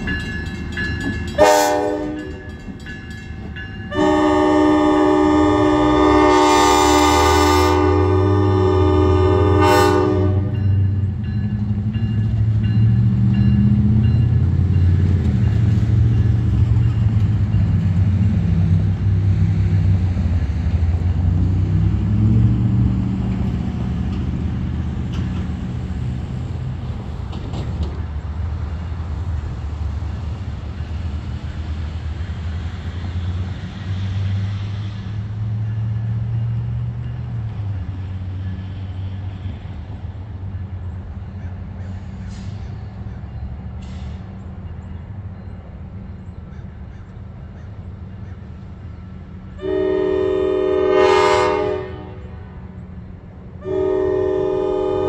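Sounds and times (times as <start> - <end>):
locomotive air horn: 1.4 - 2.4, 3.9 - 10.6, 49.6 - 52.7, 53.6 - 55.0.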